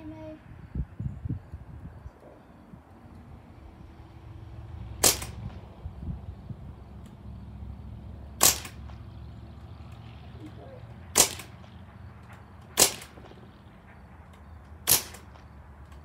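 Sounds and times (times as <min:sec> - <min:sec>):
air rifle shots: 0:04.9 - 0:05.8, 0:08.4 - 0:09.1, 0:10.9 - 0:15.6.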